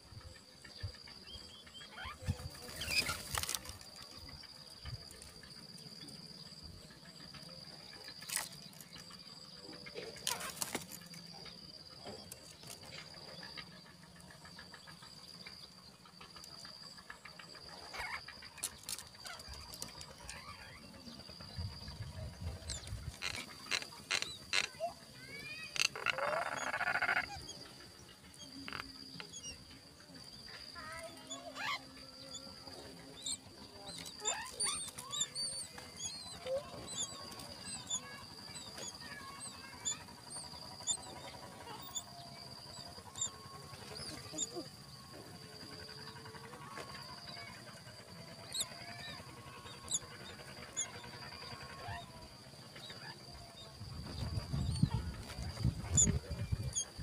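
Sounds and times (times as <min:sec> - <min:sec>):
high-pitched insect drone: 0:00.0 - 0:57.0
nestlings begging peeps: 0:01.2 - 0:03.8, 0:17.8 - 0:44.9, 0:46.0 - 0:57.0
rustling in nest: 0:02.4 - 0:04.1
raspy chattering: 0:21.5 - 0:44.8.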